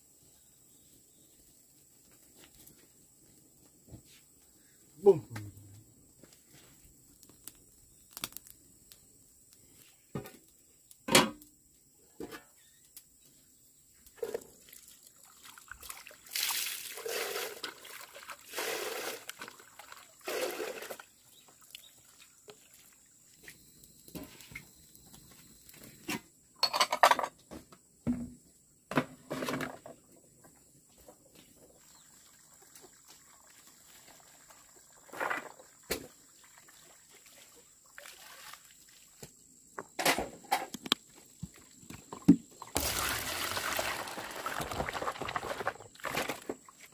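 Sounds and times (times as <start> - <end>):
water sloshing and splashing: 14.2 - 23.4, 31.8 - 39.3, 42.6 - 46.9
ceramic dishes clattering on metal tray: 26.6 - 27.4.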